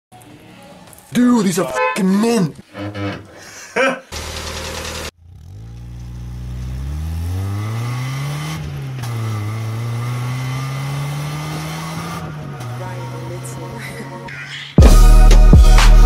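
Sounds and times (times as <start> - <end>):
car engine accelerating: 4.1 - 16.0.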